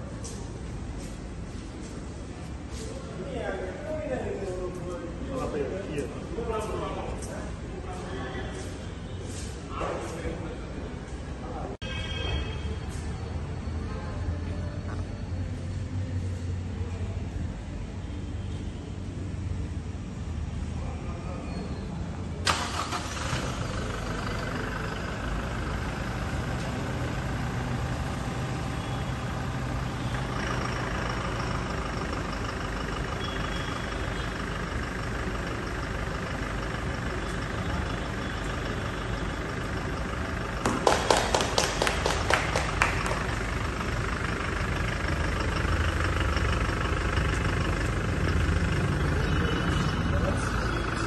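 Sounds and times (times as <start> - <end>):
diesel engine idling: 22.4 - 51.0.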